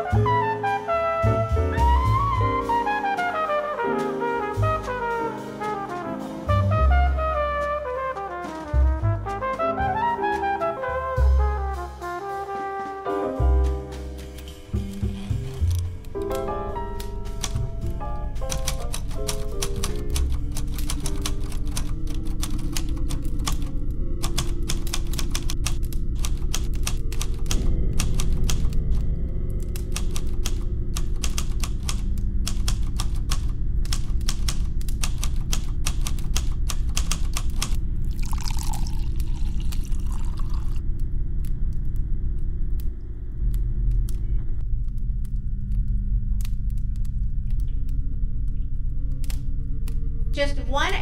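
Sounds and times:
low sustained music: 0.0 - 35.0, 37.7 - 51.0
typewriter keys clacking: 14.8 - 37.8
liquid poured into glass: 38.0 - 40.8.

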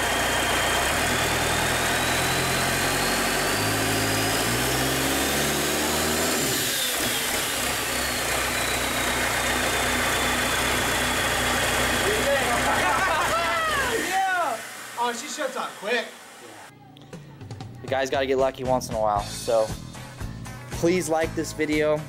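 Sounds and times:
diesel engine revving and idling: 0.0 - 16.7.

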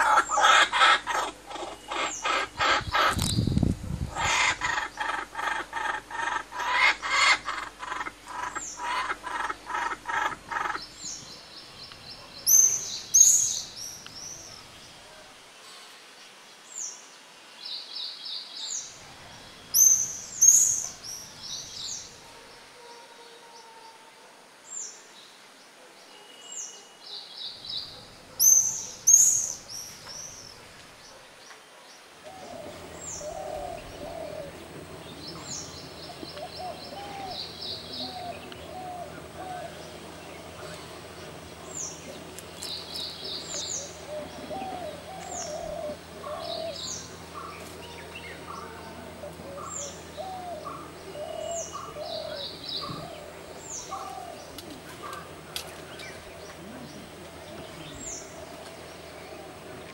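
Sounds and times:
kookaburra laughing calls: 0.0 - 3.2, 4.1 - 10.9
songbird chirps and trills: 0.0 - 15.1, 16.8 - 22.7, 26.1 - 31.2, 32.0 - 59.9
low chattering: 32.3 - 59.9.

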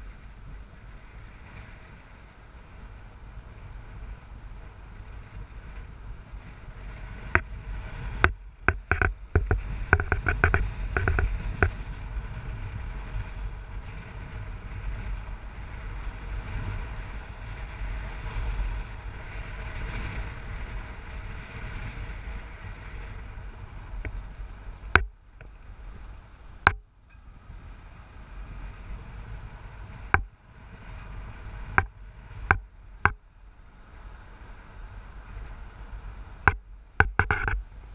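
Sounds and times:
car engine and tyre rumble: 0.0 - 37.9
sharp knocks and rattles: 8.2 - 11.8, 36.4 - 37.6.

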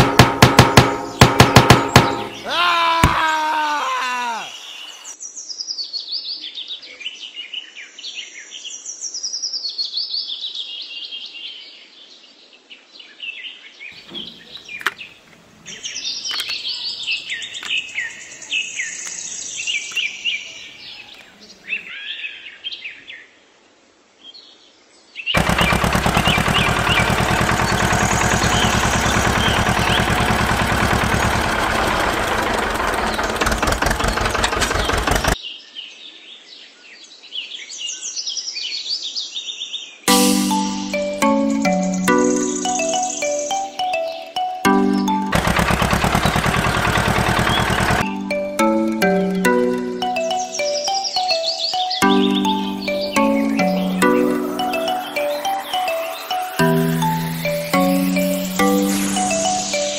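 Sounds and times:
small birds chirping: 13.9 - 22.0, 25.3 - 35.7, 40.4 - 59.9
sharp clicks: 25.4 - 35.4, 45.3 - 51.0.

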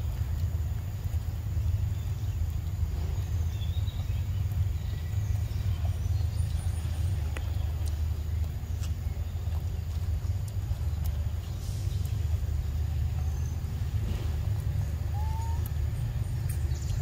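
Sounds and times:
low rumble: 0.0 - 17.0
faint sharp clicks: 0.1 - 1.4, 6.4 - 12.3, 14.0 - 17.0.

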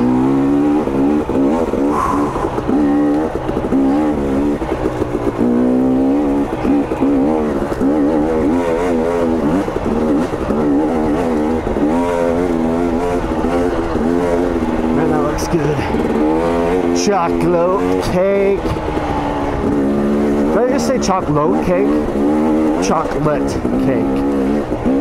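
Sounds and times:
two-stroke dirt bike engine revving: 0.0 - 25.0.

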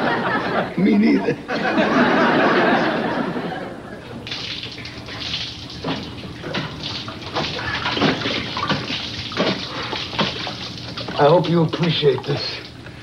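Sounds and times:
water sloshing in a container: 4.2 - 12.8.

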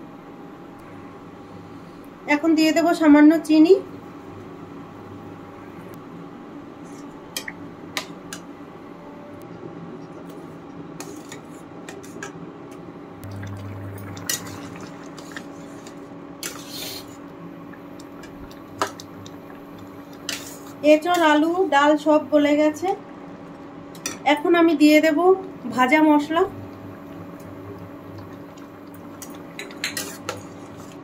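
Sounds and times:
steady low hum: 0.0 - 31.0
metal spatula scraping steel pot: 29.8 - 31.0.

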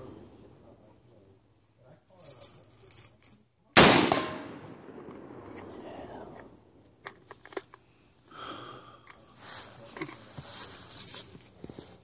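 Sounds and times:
gunshot echo: 3.8 - 6.6
rifle shot: 3.8 - 6.6.

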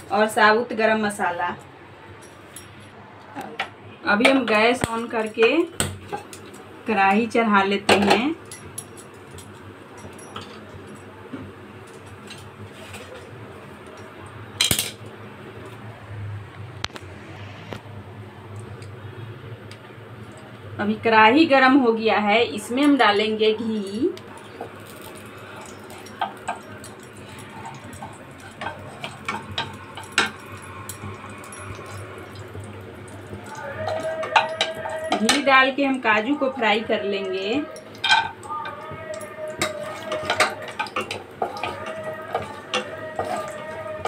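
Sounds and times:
gas burner hissing: 22.5 - 44.0
wooden spatula tapping and scraping: 38.0 - 44.0.

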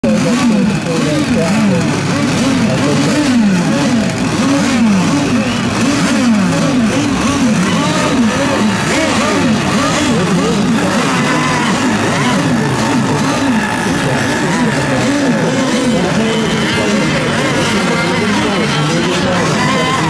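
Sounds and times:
model boat engines at high revs: 0.0 - 20.0.

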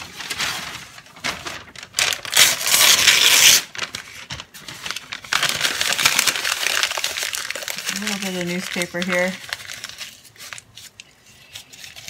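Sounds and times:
newspaper being crumpled: 0.0 - 12.0.

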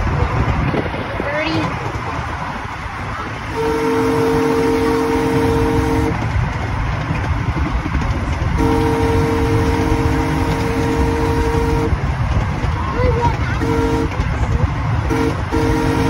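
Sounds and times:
low rumble of moving train: 0.0 - 16.0
train horn sounding a chord: 3.5 - 6.2, 8.6 - 12.0, 13.6 - 14.3, 15.0 - 16.0.

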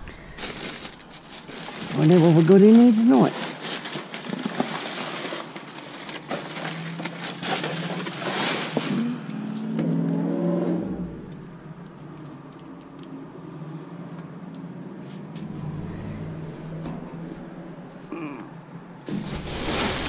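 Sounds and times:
plastic film crinkling: 0.0 - 9.3
steady low hum: 15.2 - 19.1
low pitched rumble: 15.3 - 19.0.

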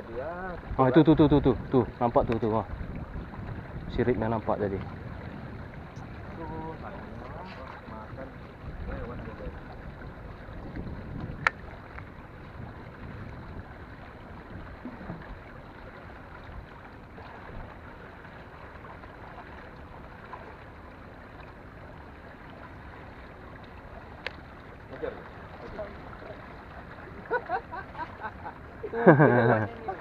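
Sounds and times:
wind on microphone: 0.0 - 17.9
water noise: 0.0 - 30.0.

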